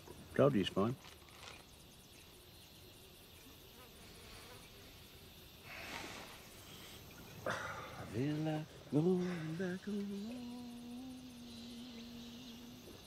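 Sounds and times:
insects buzzing: 0.0s - 13.0s
short hiss: 5.6s - 7.0s.

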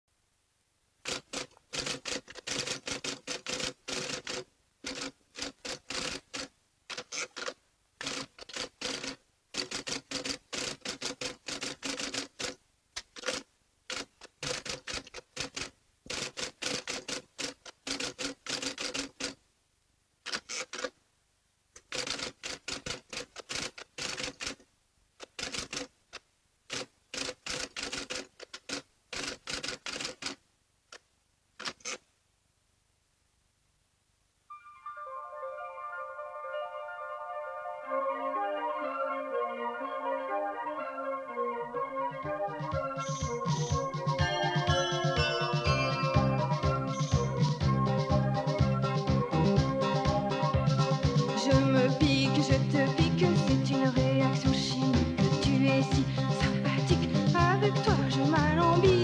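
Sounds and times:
typewriter keystrokes: 1.0s - 19.4s, 20.3s - 20.9s, 21.8s - 24.6s, 25.2s - 25.9s, 26.7s - 30.4s, 31.6s - 32.0s.

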